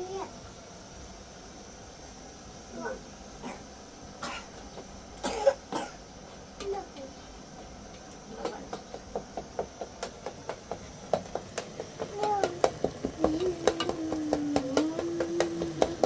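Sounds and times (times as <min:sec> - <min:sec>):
rhythmic knocking: 0:08.3 - 0:16.0
person humming: 0:13.2 - 0:16.0.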